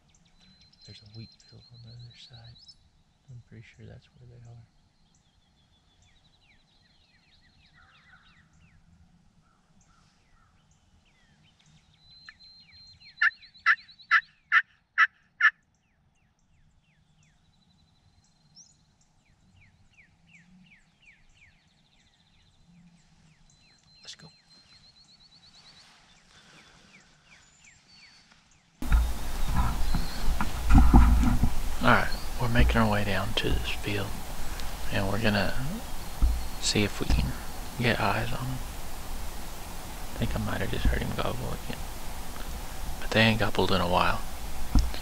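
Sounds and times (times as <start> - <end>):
faint songbirds singing: 0.0 - 45.0
turkey call yelps: 13.2 - 15.6.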